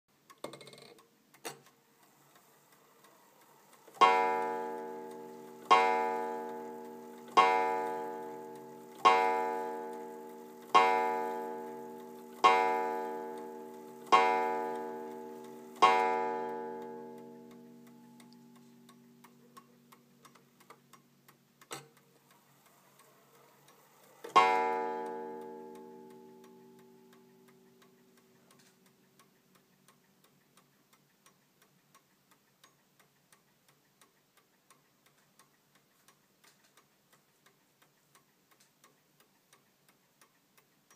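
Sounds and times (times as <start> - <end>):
clock ticking: 0.1 - 40.9
clock striking on wire gong: 4.0 - 18.1.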